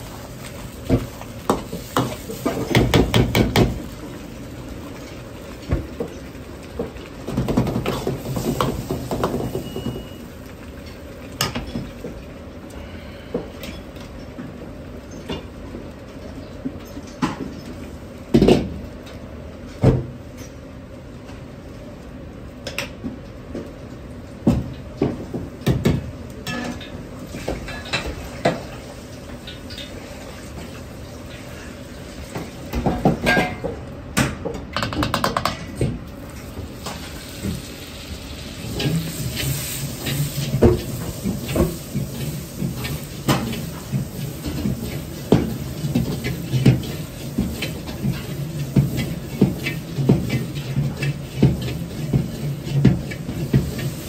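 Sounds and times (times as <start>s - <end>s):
butter sizzling in wok: 0.0s - 11.3s, 36.2s - 54.0s
gas wok burner roaring: 0.0s - 16.5s, 17.2s - 54.0s
ladles clanking against woks: 38.6s - 54.0s.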